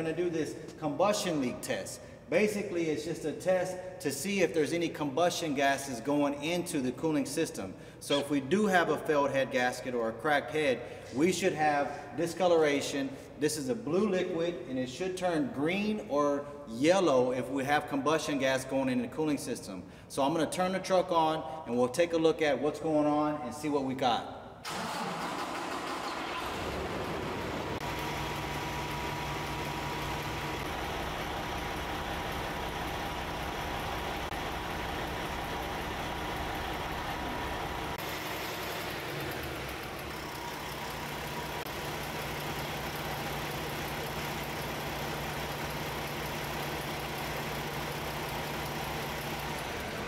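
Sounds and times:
truck diesel engine idling: 0:27.5 - 0:50.0.

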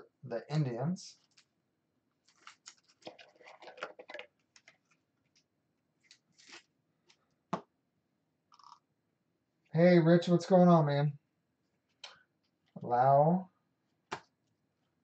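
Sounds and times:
cards rustling and sliding: 0:06.0 - 0:07.2.

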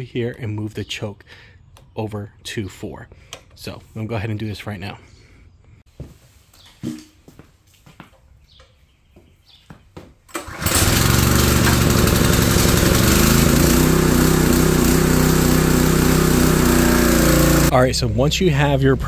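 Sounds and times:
small gas engine running: 0:10.3 - 0:18.2.

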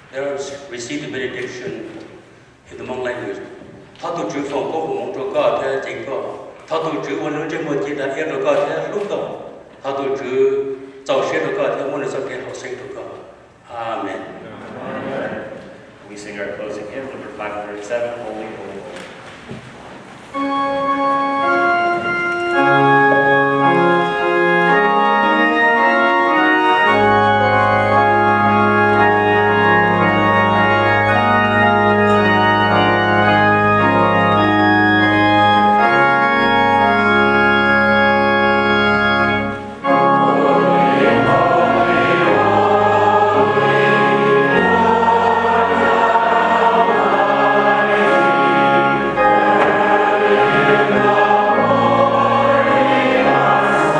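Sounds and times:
church organ playing hymn chords: 0:00.0 - 0:13.6, 0:20.3 - 0:53.9
deep organ pedal bass notes: 0:20.3 - 0:53.9
many voices singing a hymn: 0:39.8 - 0:53.9.

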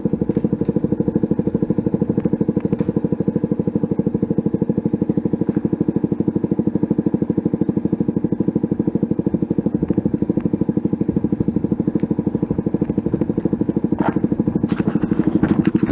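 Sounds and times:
motorcycle engine idling: 0:00.0 - 0:15.9.

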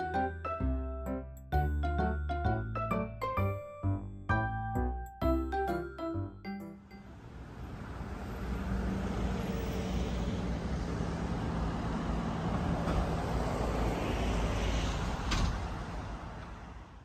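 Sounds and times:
road traffic rumble: 0:06.7 - 0:17.0.

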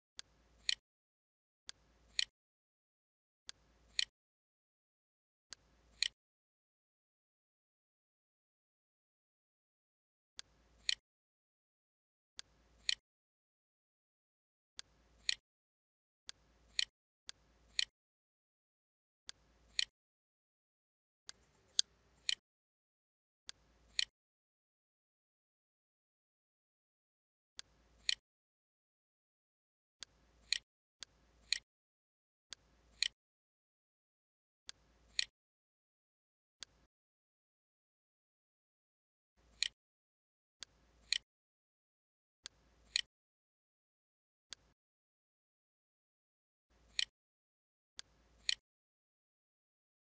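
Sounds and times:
computer mouse clicks: 0:00.2 - 0:00.8, 0:01.7 - 0:02.3, 0:03.9 - 0:04.1, 0:05.5 - 0:06.2, 0:10.4 - 0:11.0, 0:12.4 - 0:13.0, 0:19.3 - 0:19.9, 0:23.5 - 0:24.1, 0:27.6 - 0:28.2, 0:30.0 - 0:31.6, 0:39.4 - 0:39.8, 0:41.0 - 0:41.2, 0:46.8 - 0:47.1, 0:48.0 - 0:48.6.

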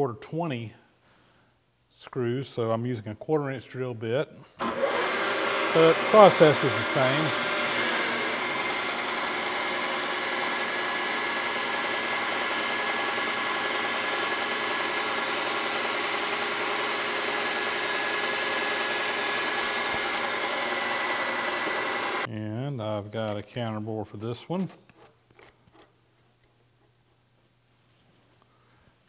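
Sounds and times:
drill boring into metal: 0:19.2 - 0:20.6.

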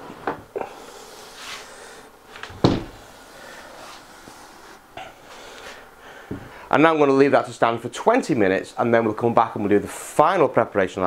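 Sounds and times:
sponge rubbing on wood: 0:01.0 - 0:01.8.

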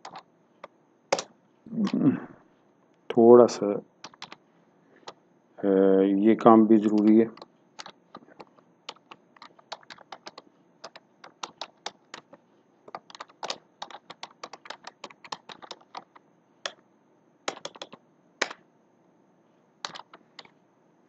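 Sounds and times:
typing on computer keyboard: 0:00.0 - 0:00.3, 0:04.0 - 0:04.4, 0:06.8 - 0:16.8, 0:17.5 - 0:18.6, 0:19.8 - 0:20.5.

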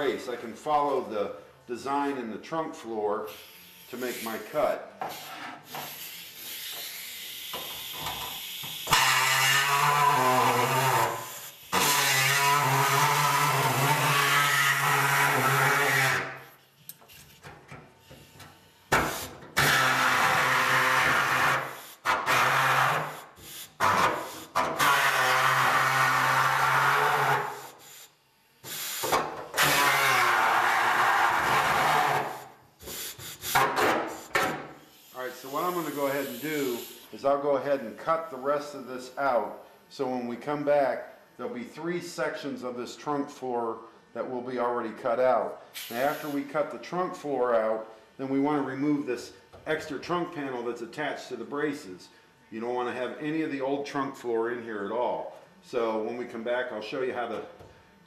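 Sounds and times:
air hacksaw cutting sheet steel: 0:05.7 - 0:16.4, 0:18.9 - 0:27.8, 0:28.7 - 0:34.6.

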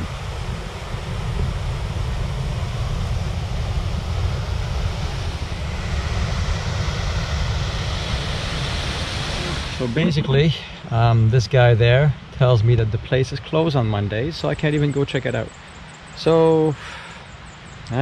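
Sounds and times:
waterfalls rushing: 0:00.0 - 0:12.3
wind buffeting microphone: 0:00.0 - 0:16.7.

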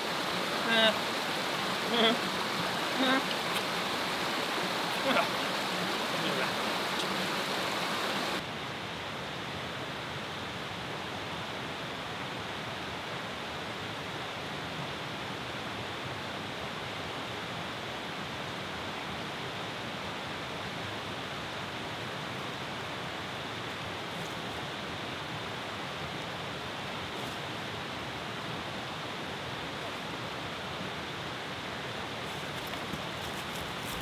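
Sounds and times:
brook running over stones: 0:00.0 - 0:08.4, 0:31.8 - 0:34.0.

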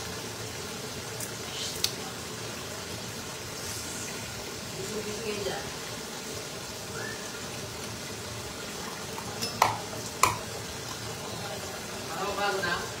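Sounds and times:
steady hiss: 0:00.0 - 0:08.8.

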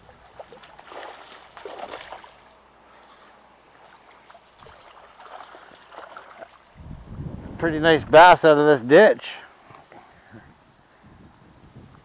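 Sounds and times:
fish splashing in water: 0:00.0 - 0:02.6, 0:03.8 - 0:06.7.

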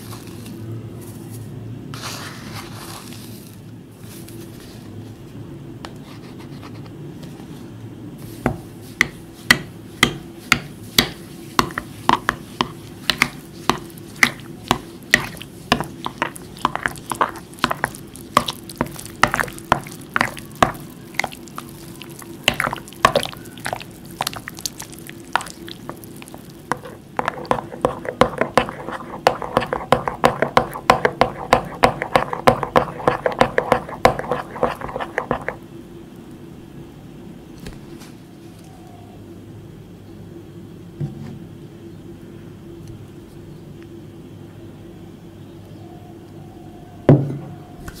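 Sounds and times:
wet stirring: 0:10.5 - 0:35.6.

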